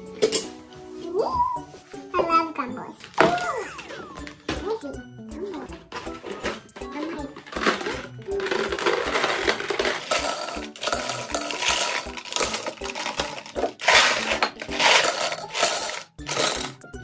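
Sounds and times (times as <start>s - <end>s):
gumballs clinking against glass: 6.6s - 16.8s.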